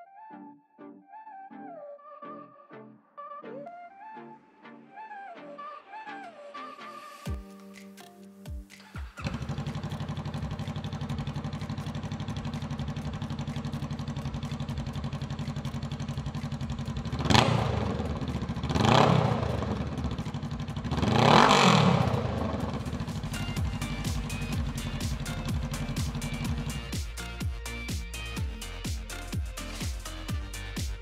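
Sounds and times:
motorcycle engine idling and revving: 0:08.8 - 0:31.0.

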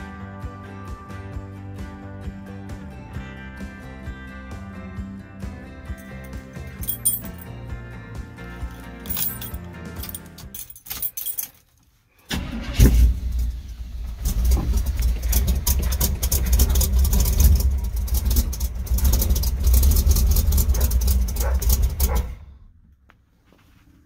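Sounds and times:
engine cranking and starting: 0:12.3 - 0:22.3
engine running deep exhaust: 0:12.8 - 0:22.8.

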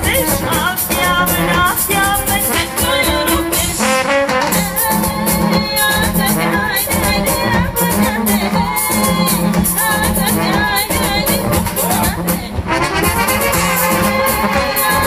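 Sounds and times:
brass band playing: 0:00.0 - 0:15.0.

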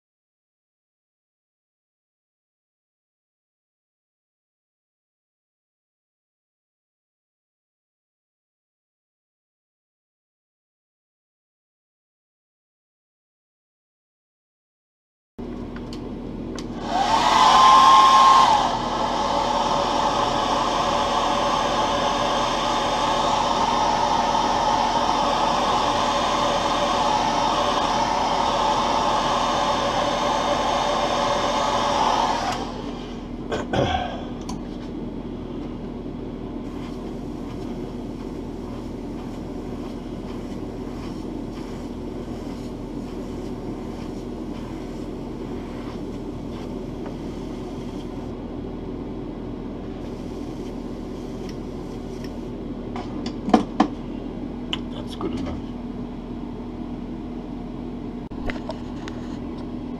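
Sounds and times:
steady low hum: 0:15.4 - 0:59.9
hair dryer blowing: 0:16.6 - 0:33.4, 0:36.7 - 0:48.2.

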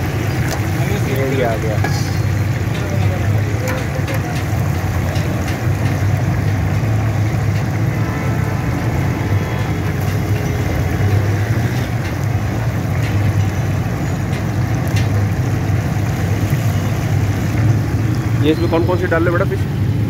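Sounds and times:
hot oil bubbling and sizzling: 0:00.0 - 0:20.0
low rumble: 0:01.8 - 0:12.4.

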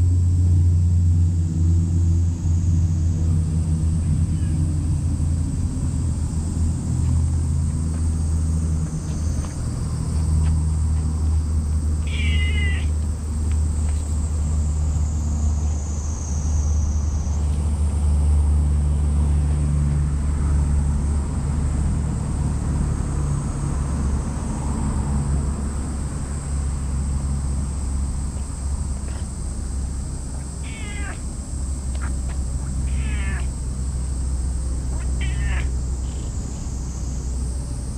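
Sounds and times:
cat meowing: 0:04.3 - 0:04.7, 0:12.0 - 0:13.0, 0:30.6 - 0:31.2, 0:31.9 - 0:33.5, 0:34.9 - 0:36.3.

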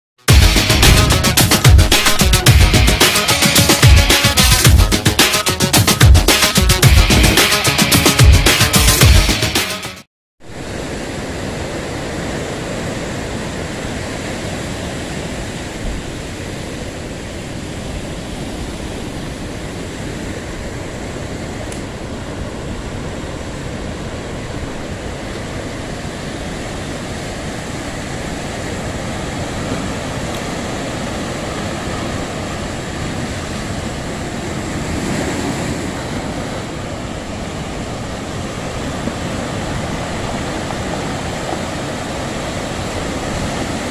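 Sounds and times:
surf breaking on rocks: 0:22.2 - 0:43.9.

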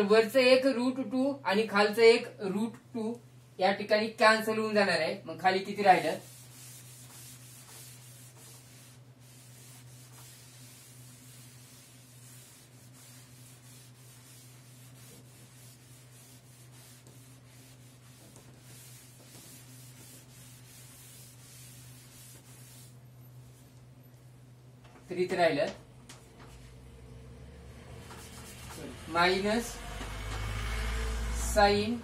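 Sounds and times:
cloth wiping a chalkboard: 0:05.6 - 0:23.9, 0:28.0 - 0:29.0.

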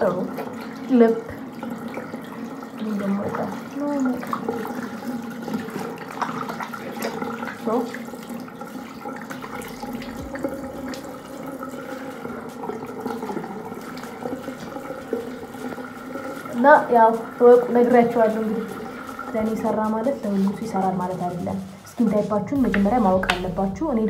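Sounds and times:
tap water running into sink: 0:00.0 - 0:24.0.

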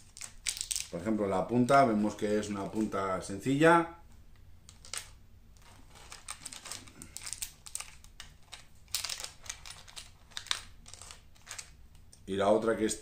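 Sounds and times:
plastic packaging crinkling: 0:00.0 - 0:01.1, 0:02.0 - 0:03.1, 0:04.7 - 0:12.2.

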